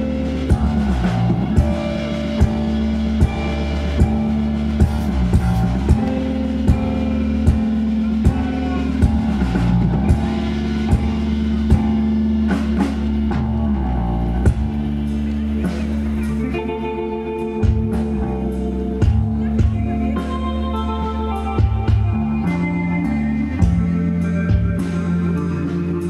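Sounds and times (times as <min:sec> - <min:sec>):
drum kit hits: 0:00.0 - 0:16.5
bass guitar: 0:00.0 - 0:26.0
electric guitar: 0:00.0 - 0:26.0.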